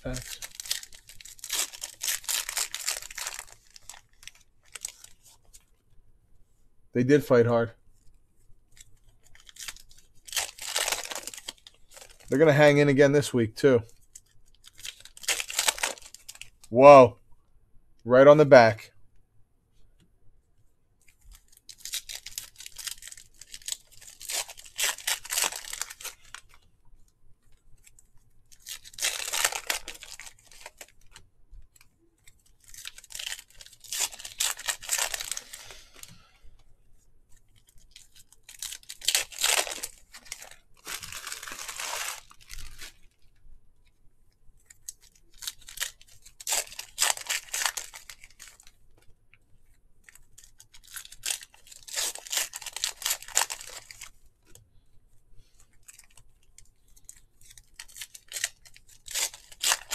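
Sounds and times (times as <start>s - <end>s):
foil wrappers tearing and crinkling: 0.0s - 5.4s, 8.8s - 12.3s, 14.0s - 16.7s, 21.3s - 26.6s, 28.5s - 31.2s, 31.8s - 36.2s, 37.6s - 43.2s, 44.6s - 48.8s, 50.0s - 54.6s, 55.8s - 59.9s.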